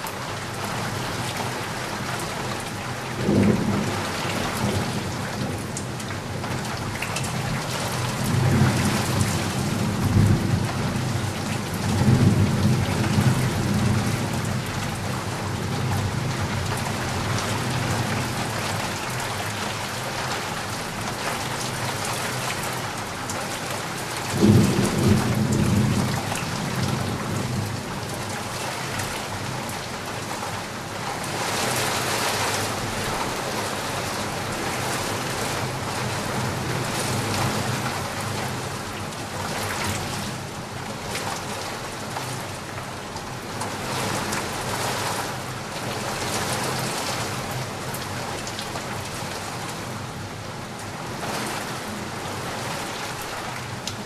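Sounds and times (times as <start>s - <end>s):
steady rain falling: 0.0s - 54.0s
low thunder rumbling: 24.3s - 28.0s.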